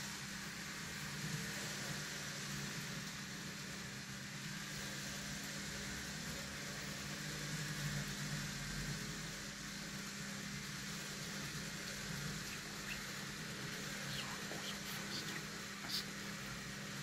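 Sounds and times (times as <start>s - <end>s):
model train whirring on rails: 0.0s - 14.0s.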